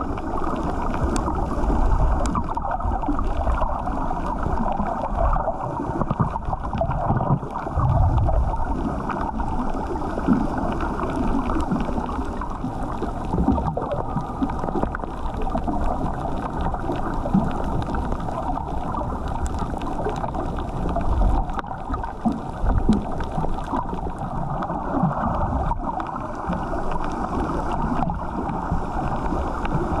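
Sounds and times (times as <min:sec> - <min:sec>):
underwater rush of water: 0:00.0 - 0:30.0
brief low thuds: 0:07.8 - 0:08.5.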